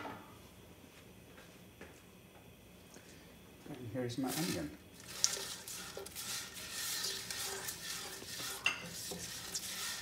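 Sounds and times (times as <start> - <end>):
spatula scraping frying pan: 4.4 - 10.0.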